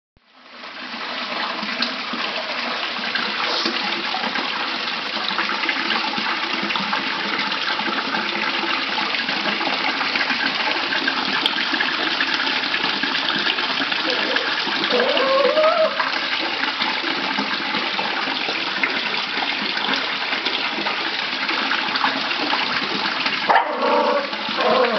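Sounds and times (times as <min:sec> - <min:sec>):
water running into pond: 0:00.2 - 0:24.9.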